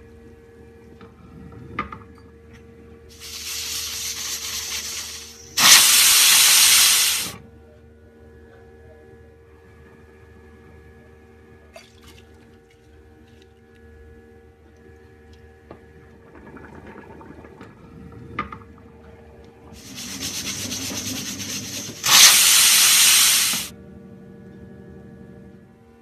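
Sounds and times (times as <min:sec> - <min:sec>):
pressure cooker hissing steam: 0:03.1 - 0:07.4, 0:19.8 - 0:23.7.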